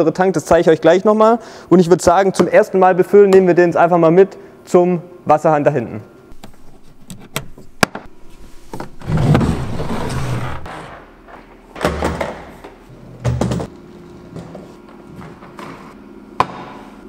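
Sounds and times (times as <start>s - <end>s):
plastic tank scraping and sliding: 8.7s - 10.9s.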